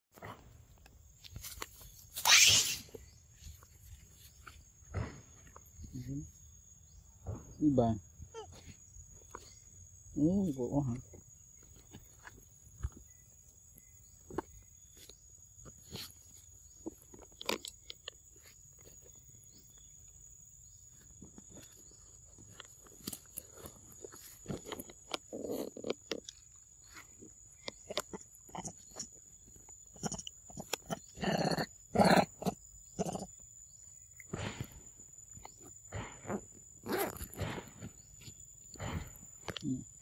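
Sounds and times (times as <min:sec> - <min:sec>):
loud short monkey calls: 0:02.2 - 0:03.0.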